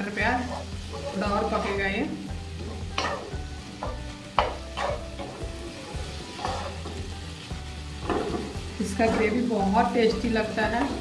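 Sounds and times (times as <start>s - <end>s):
food sizzling: 0.0s - 11.0s
spatula scraping frying pan: 0.2s - 9.6s
spatula knocking against pan: 3.8s - 5.4s.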